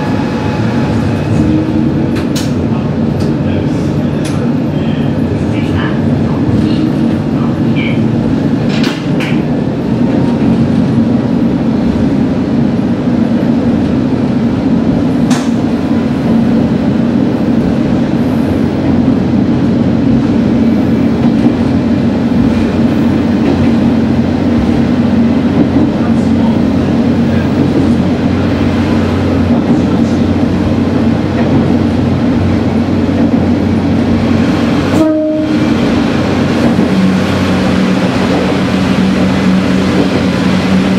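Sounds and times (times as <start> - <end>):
rail noise: 0.0 - 40.9
railcar engine drone: 0.0 - 40.9.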